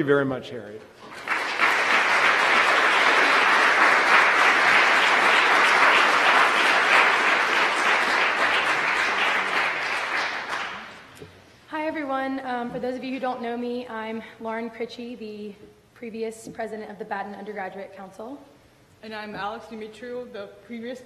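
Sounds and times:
audience applauding: 1.0 - 11.2.

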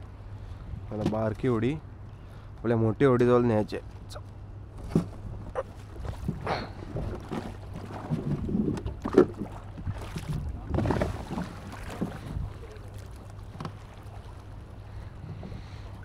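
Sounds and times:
water sloshing and splashing: 3.8 - 16.0.

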